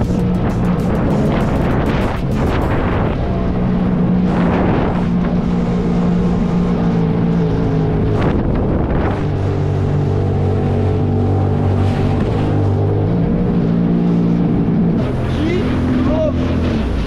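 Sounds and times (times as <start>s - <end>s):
jet ski engine running: 0.0s - 17.0s
wind on microphone: 0.0s - 17.0s.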